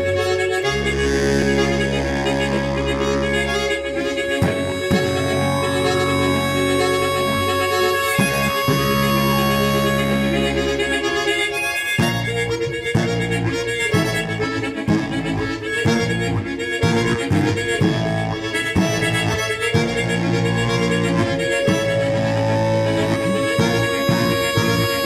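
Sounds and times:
harmonica melody: 0:00.0 - 0:25.0
rhythmic chord accompaniment: 0:00.0 - 0:25.0.

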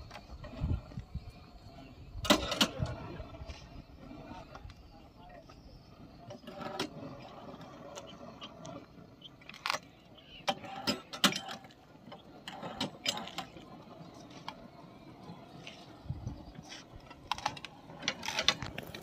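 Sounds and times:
faint background noise: 0:00.0 - 0:19.0.

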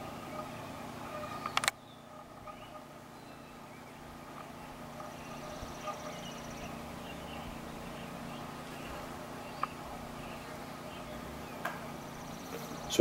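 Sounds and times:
steady low hum: 0:00.0 - 0:13.0
small bird chirps: 0:00.1 - 0:13.0.

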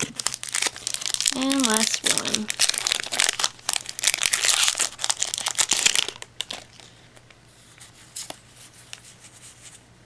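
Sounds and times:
foil wrapper crinkling: 0:00.0 - 0:07.3.

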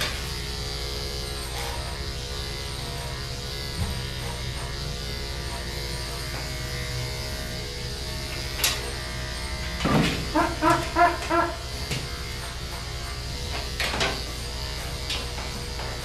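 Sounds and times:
electric clippers buzzing: 0:00.0 - 0:16.0
loud pitched sounds: 0:10.2 - 0:11.8.

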